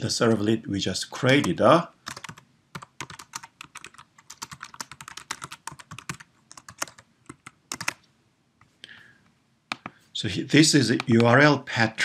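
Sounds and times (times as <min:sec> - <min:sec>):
computer keyboard typing: 0:01.2 - 0:08.0.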